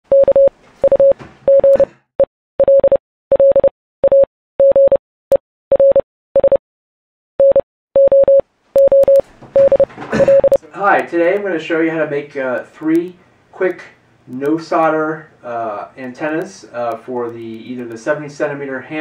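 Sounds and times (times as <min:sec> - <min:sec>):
morse code beeps: 0:00.1 - 0:01.9, 0:02.6 - 0:05.0, 0:05.7 - 0:06.6, 0:07.4 - 0:10.6.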